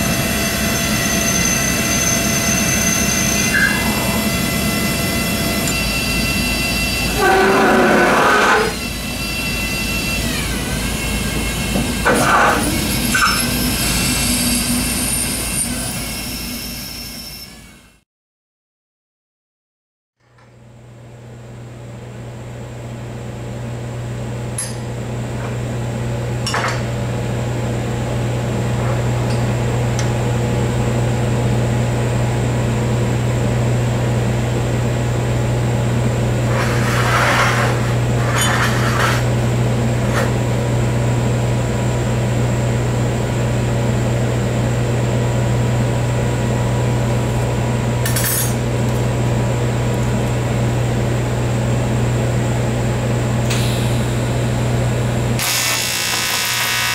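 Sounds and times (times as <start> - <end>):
low machine hum: 0.0 - 14.2, 20.3 - 56.9
metal block scraping clatter: 36.5 - 39.3.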